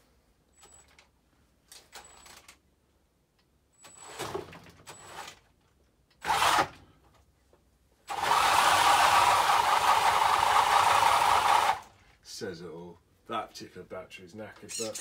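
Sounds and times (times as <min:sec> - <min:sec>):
toy truck electric motor whir: 0:06.2 - 0:06.8, 0:08.1 - 0:11.9.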